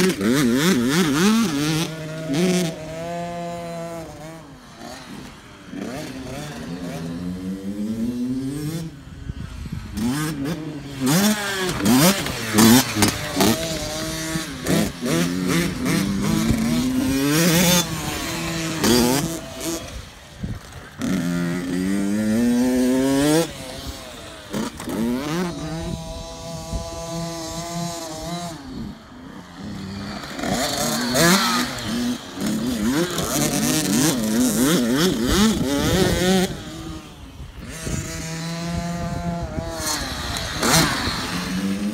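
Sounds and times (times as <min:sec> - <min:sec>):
dirt bikes revving: 0:00.0 - 0:41.9.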